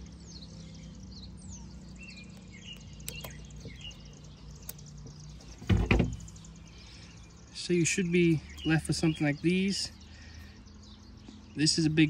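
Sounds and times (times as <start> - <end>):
small birds chirping: 0.0 - 12.0
light metal clicks: 2.3 - 5.2.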